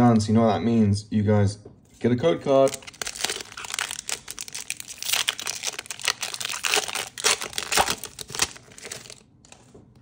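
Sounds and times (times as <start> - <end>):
foil wrapper crinkling: 2.5 - 9.6.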